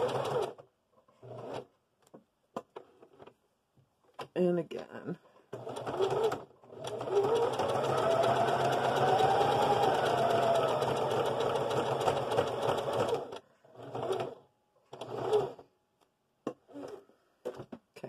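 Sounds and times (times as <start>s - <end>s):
electric sewing machine running: 0.0s - 0.6s, 5.6s - 14.4s.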